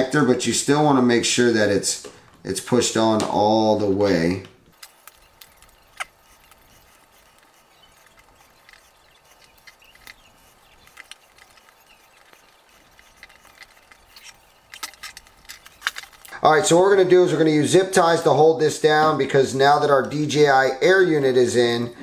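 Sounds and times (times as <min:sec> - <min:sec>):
clicks of small parts being handled: 0:04.7 - 0:16.4.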